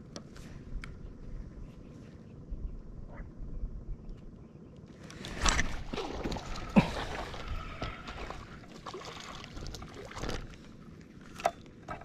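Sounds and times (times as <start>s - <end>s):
water splashing around a boat: 5.1s - 12.0s.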